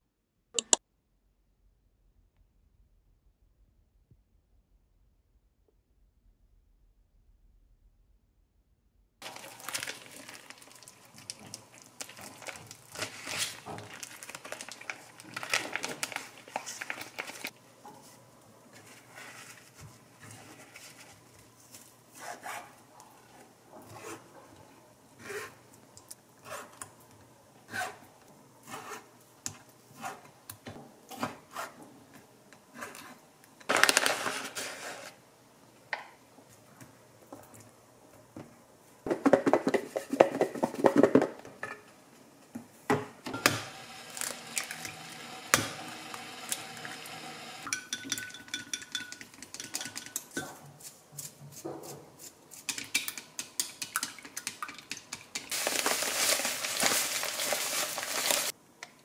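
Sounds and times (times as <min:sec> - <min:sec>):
egg cracking: 0:09.2 - 0:17.6
chopsticks clinking in glass bowl: 0:47.7 - 0:50.6.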